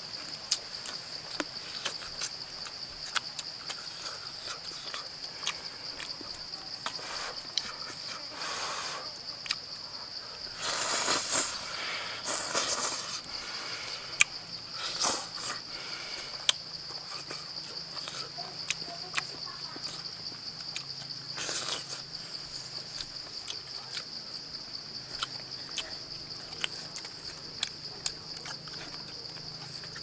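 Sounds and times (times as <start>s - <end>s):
insects droning: 0.0s - 30.0s
chewing and slurping: 0.5s - 8.2s, 10.5s - 24.4s.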